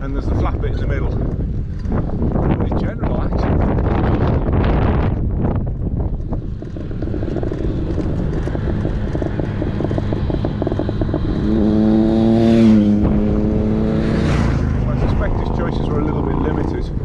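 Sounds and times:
wind buffeting microphone: 0.0 - 17.0
vehicle passing by: 6.6 - 17.0.

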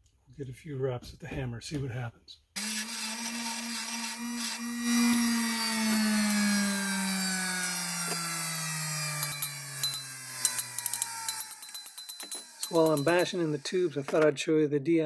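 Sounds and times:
grinder motor spinning down: 2.6 - 14.2.

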